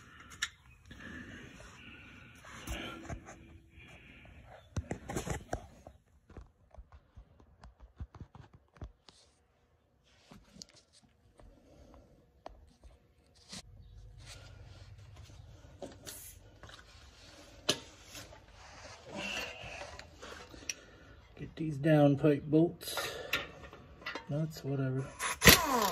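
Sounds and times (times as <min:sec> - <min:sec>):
hand tools clicking and scraping: 0:22.9 - 0:24.5.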